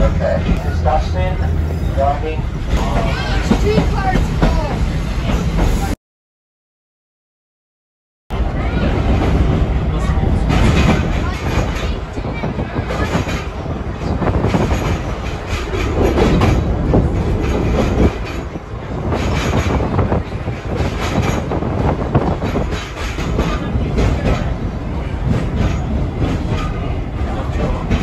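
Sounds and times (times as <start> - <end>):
tram wheels rumbling on rails: 0.0 - 6.0, 8.3 - 28.0
clacks over rail joints: 2.7 - 5.8, 10.2 - 28.0.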